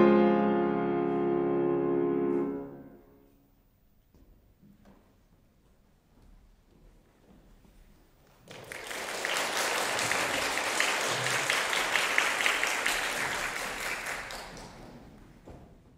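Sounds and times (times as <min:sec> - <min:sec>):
audience applauding: 0:08.4 - 0:15.4.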